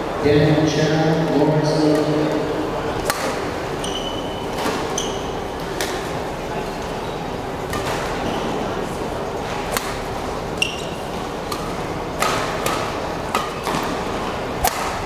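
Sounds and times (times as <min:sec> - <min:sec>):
crowd murmur: 0:00.0 - 0:15.0
racket hitting shuttlecock: 0:03.0 - 0:06.2, 0:07.6 - 0:08.5, 0:09.4 - 0:15.0
shoe squeak on court floor: 0:03.8 - 0:05.4, 0:10.6 - 0:11.1.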